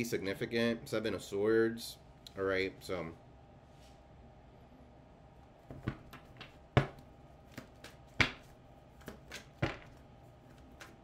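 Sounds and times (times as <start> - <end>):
cards shuffled and slapped: 5.7 - 11.0.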